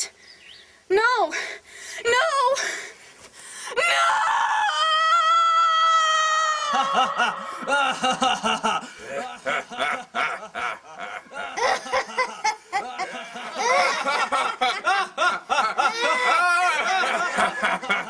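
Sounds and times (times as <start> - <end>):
child laughing: 6.6 - 18.0
man laughing: 6.7 - 18.0.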